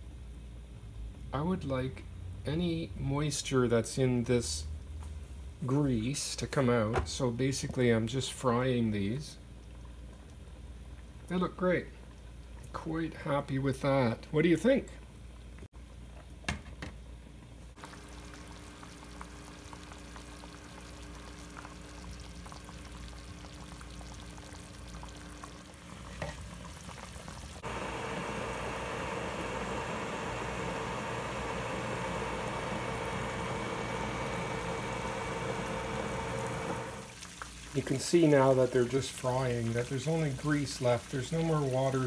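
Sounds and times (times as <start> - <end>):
meatballs sizzling in a pan: 17.8 - 36.2, 37.0 - 42.0.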